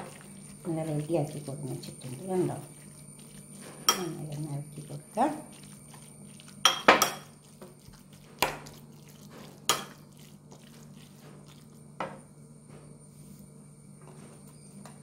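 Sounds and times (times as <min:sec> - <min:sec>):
spoon clinking against ceramic bowl: 0:03.8 - 0:04.2, 0:06.6 - 0:07.4.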